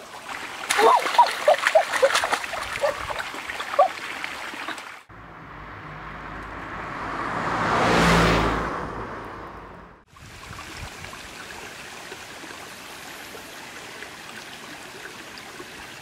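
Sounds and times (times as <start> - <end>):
running stream water: 0.0 - 8.8, 10.0 - 16.0
hands splashing in water: 0.5 - 4.9.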